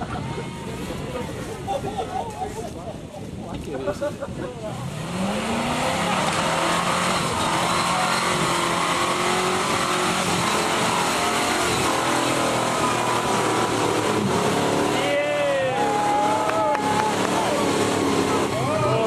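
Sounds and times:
engine at high revs: 4.7 - 19.0.

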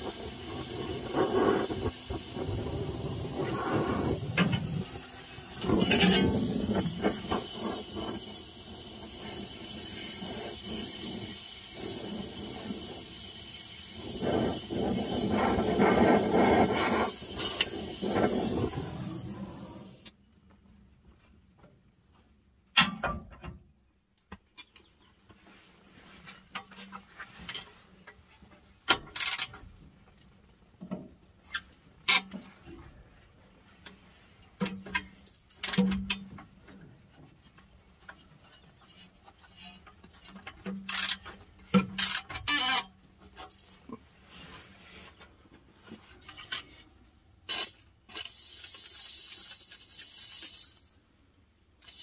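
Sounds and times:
ratchet clicking on bolt: 40.8 - 42.9
aerosol spray hissing: 47.5 - 50.9.

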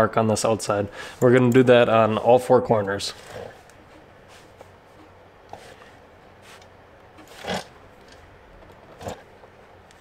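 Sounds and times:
soft handling sounds: 2.2 - 7.4.

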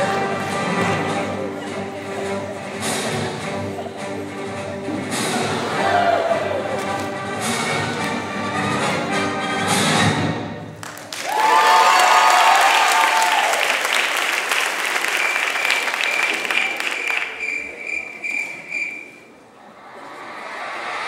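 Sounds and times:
music: 0.0 - 10.9
audience applauding and cheering: 10.8 - 17.8.

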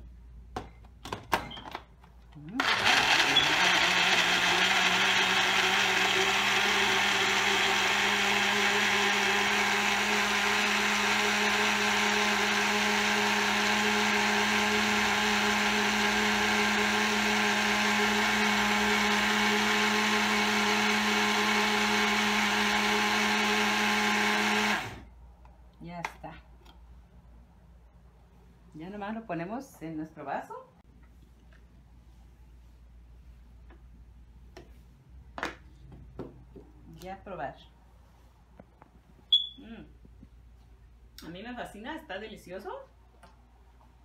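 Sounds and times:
blender motor whine: 2.6 - 25.1.

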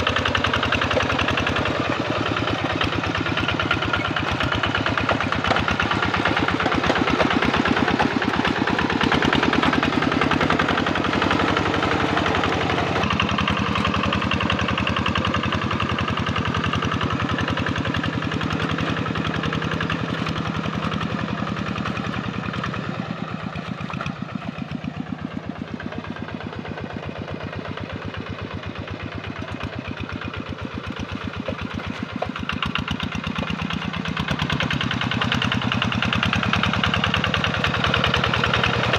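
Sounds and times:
diesel tractor engine chugging: 0.0 - 38.9.

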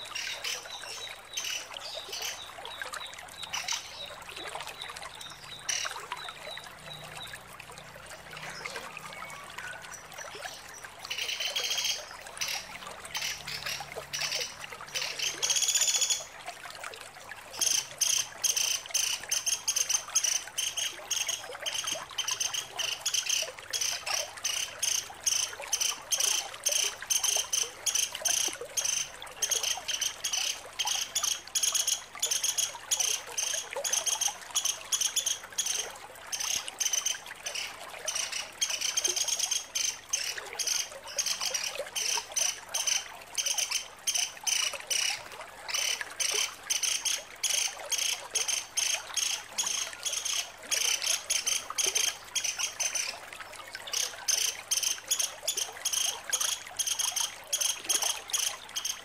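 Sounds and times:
woodpecker chattering calls: 36.4 - 53.1.

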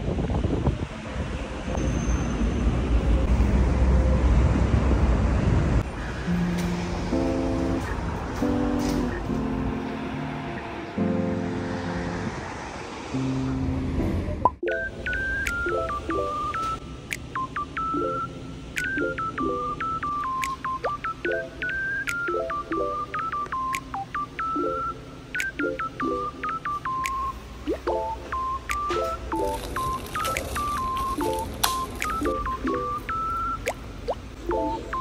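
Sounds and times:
electronic music with synth melody: 14.6 - 35.0.

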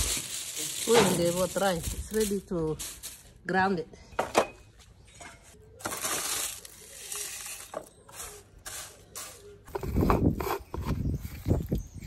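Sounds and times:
dry leaves crackling and rustling: 0.0 - 3.5, 5.8 - 9.5.

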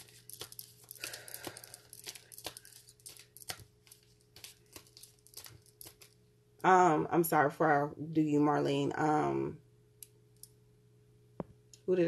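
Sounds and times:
cards being shuffled: 0.0 - 6.2
faint steady hum: 0.0 - 12.0.

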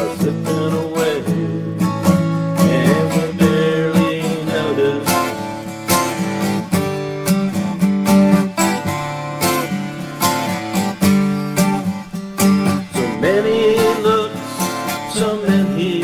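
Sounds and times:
man singing: 0.0 - 5.8, 12.7 - 16.0
acoustic guitar strumming chords: 0.0 - 16.0.

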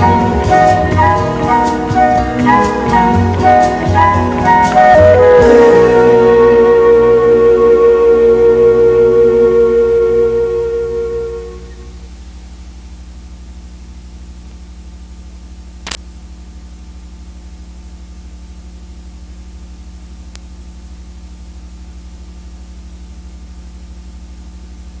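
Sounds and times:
electrical hum and hiss: 0.0 - 25.0
sharp click: 15.8 - 16.0.

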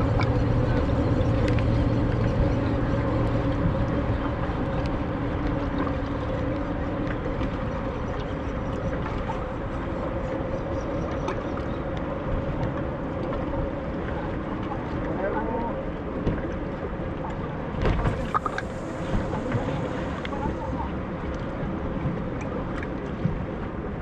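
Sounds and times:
boat engine humming: 0.0 - 24.0
wind: 0.0 - 24.0
water washing: 17.7 - 24.0.

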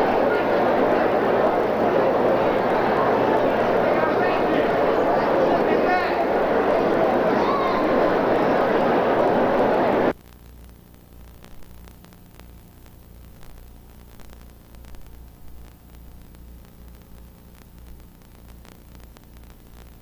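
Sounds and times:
faint crackles: 0.0 - 20.0
tape hiss: 0.0 - 20.0.

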